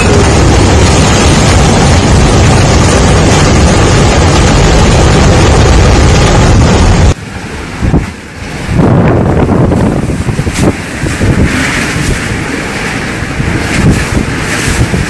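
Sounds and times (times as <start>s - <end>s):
gusting wind: 0.0s - 15.0s
strong wind on microphone: 0.0s - 15.0s.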